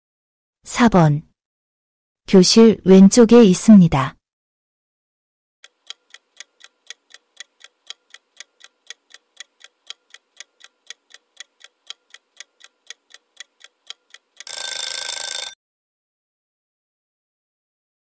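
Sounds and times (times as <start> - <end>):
clock ticking: 5.6 - 15.6
electric bell alarm ringing: 14.4 - 15.6.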